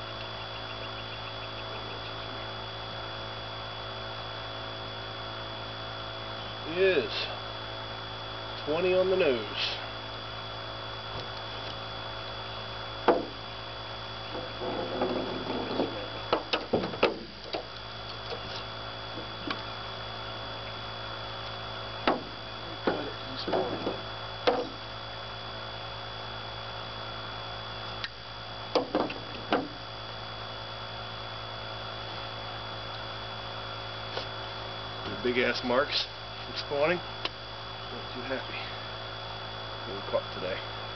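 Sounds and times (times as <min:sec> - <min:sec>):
steady low hum: 0:00.0 - 0:40.9
knocks and thumps on boat deck: 0:13.0 - 0:13.4, 0:14.3 - 0:17.7, 0:22.0 - 0:24.8, 0:28.7 - 0:29.8.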